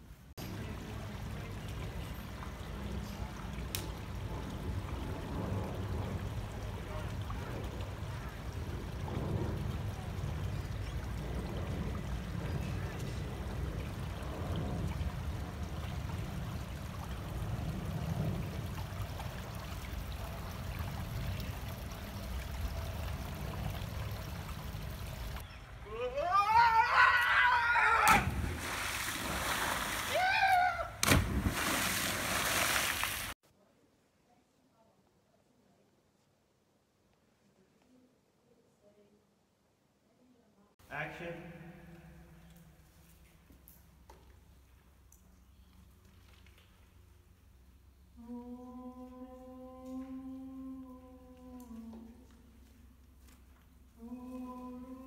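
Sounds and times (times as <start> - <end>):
churning water: 0.4 - 25.5, 27.7 - 33.4
person shouting: 25.8 - 28.3
body splashing into pool: 28.0 - 33.4
person humming held notes: 48.2 - 52.2, 54.0 - 55.0.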